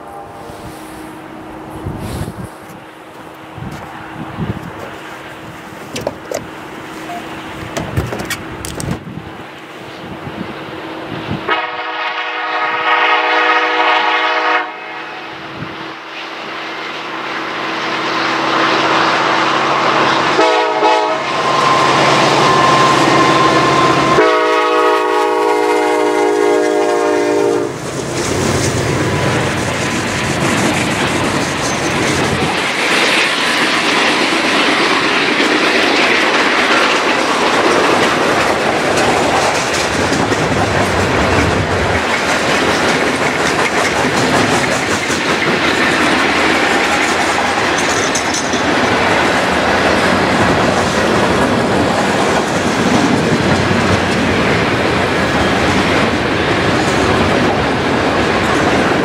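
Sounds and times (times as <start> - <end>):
train rumble: 0.0 - 59.0
wheels clattering on rails: 4.5 - 9.2, 27.8 - 59.0
locomotive air horn blasts: 11.5 - 15.4, 19.7 - 27.8.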